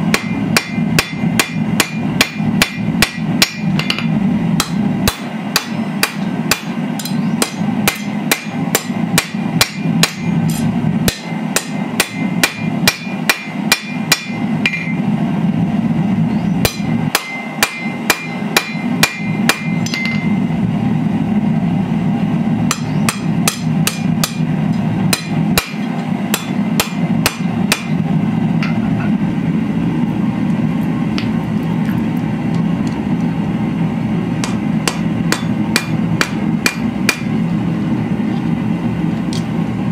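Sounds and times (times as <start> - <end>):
hammer striking steel on anvil: 0.0 - 15.1, 16.6 - 20.4, 22.7 - 28.0, 28.6 - 29.2, 34.4 - 37.4
low hum: 0.0 - 39.9.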